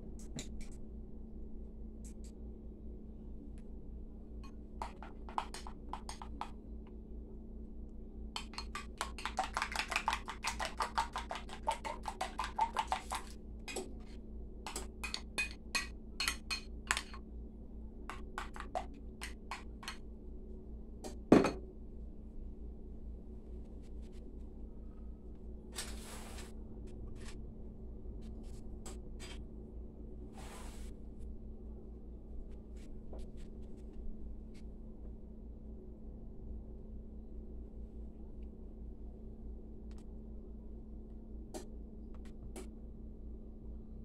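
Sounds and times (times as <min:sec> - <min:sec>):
spoon clinking against glass bowl: 0:15.0 - 0:17.2
bowl knocking on counter: 0:21.3 - 0:21.6.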